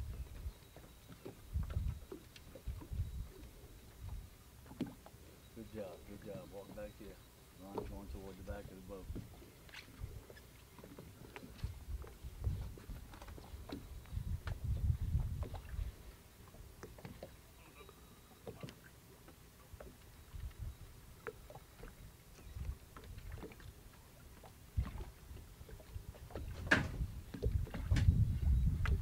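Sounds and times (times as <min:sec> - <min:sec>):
wind rumbling on microphone: 0:00.0 - 0:00.6, 0:01.4 - 0:04.4, 0:07.8 - 0:10.4, 0:11.4 - 0:16.1, 0:20.2 - 0:21.0, 0:21.9 - 0:23.6, 0:24.7 - 0:29.0
water slapping boat hull: 0:00.0 - 0:29.0.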